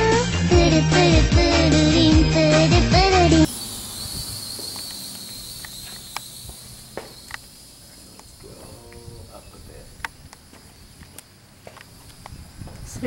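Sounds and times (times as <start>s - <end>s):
drone propellers whining: 2.5s - 12.4s.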